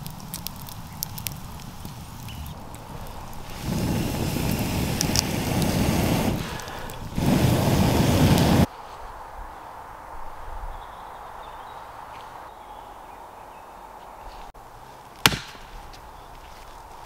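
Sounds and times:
campfire crackling and popping: 0:00.0 - 0:08.7
air blown through metal tube: 0:03.4 - 0:08.7.

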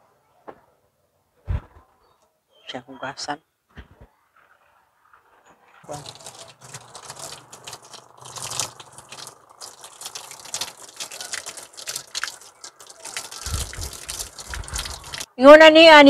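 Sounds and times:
water pouring and splashing: 0:05.8 - 0:15.3.

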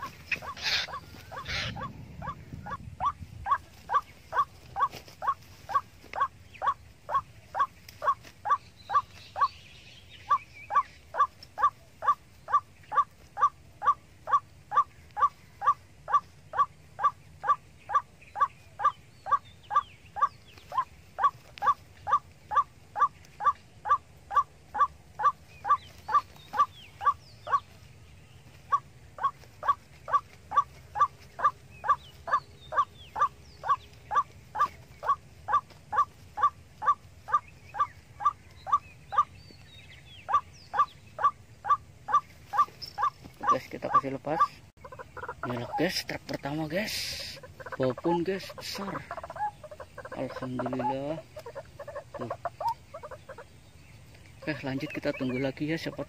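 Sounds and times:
waterhen harsh call: 0:00.0 - 0:09.5
faint bird chirps: 0:00.0 - 0:56.0.

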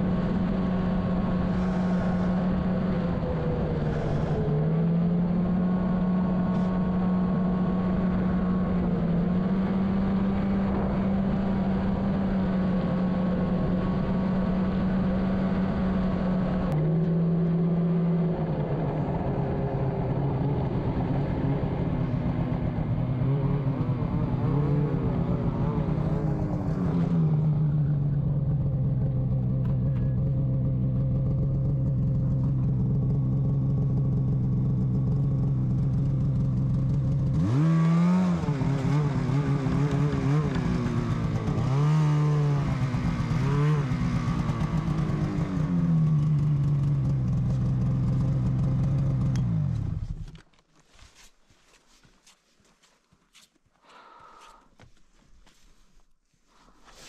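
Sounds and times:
snowmobile engine idling and revving: 0:00.0 - 0:52.4.

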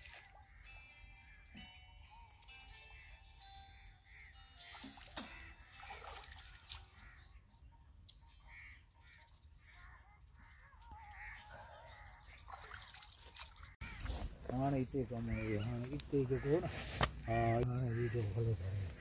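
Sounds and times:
faint bird calls: 0:08.2 - 0:12.7, 0:13.6 - 0:19.0.

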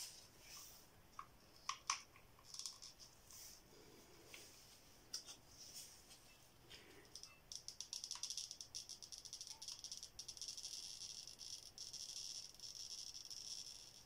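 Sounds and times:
hot glue gun crackling rattle: 0:07.1 - 0:14.0.

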